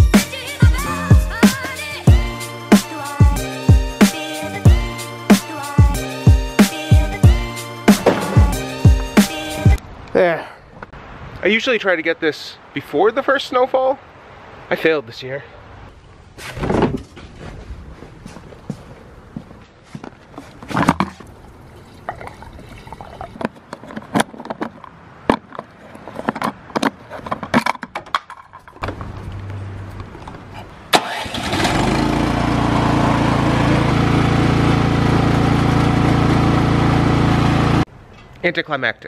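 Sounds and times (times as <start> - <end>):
snowblower engine running: 31.0 - 37.8.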